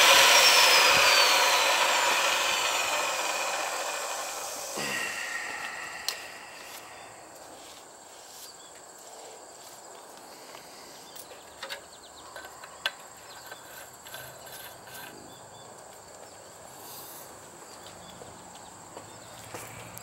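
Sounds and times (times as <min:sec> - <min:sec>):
insect trilling: 0:00.0 - 0:07.7.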